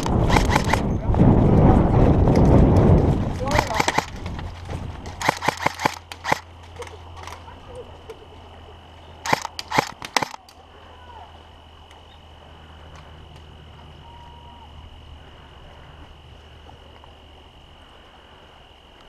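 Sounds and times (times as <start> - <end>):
gas pistol shots: 0.0 - 0.9, 3.5 - 4.2, 5.1 - 6.5, 9.2 - 10.4
faint outdoor background: 0.0 - 19.0.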